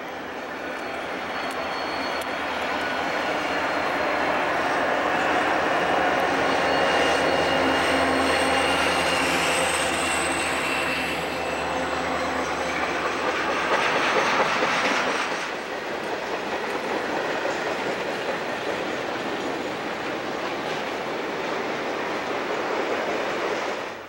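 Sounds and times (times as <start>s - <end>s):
high wheel squeal: 0.0s - 15.8s
locomotive engine drone: 0.0s - 22.3s.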